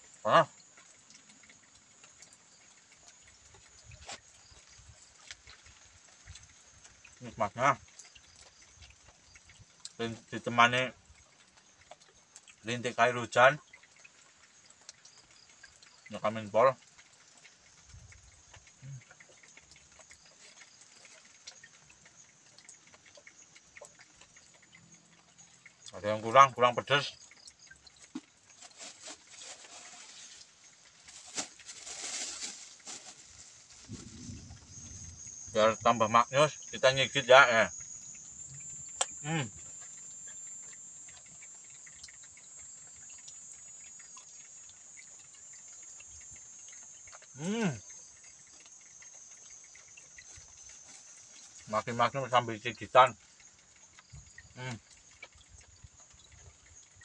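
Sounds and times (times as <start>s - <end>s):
insects buzzing: 0.0s - 57.0s
light rain drops ticking: 0.0s - 57.0s
faint high hiss: 28.5s - 42.6s, 43.5s - 53.4s, 54.5s - 54.9s.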